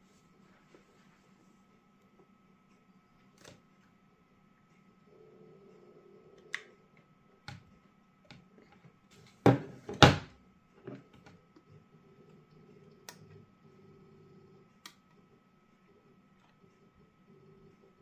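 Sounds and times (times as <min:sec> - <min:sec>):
case knocking on table: 0:09.4 - 0:10.3.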